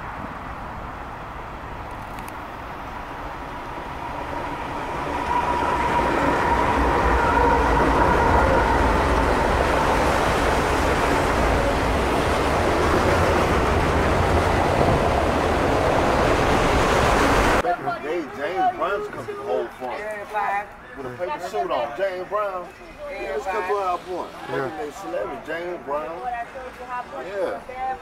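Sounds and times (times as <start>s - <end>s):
freight train wheels rumbling on rails: 3.0s - 17.6s.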